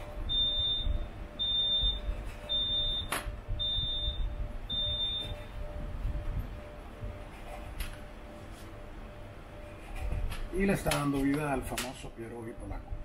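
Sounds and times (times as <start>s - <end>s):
low steady hum: 0.0s - 13.0s
electronic beeper beeps: 0.3s - 5.5s.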